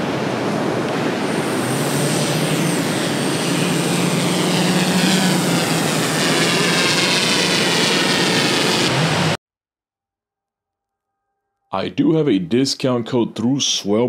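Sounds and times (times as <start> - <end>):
drone propellers buzzing: 0.0 - 9.4.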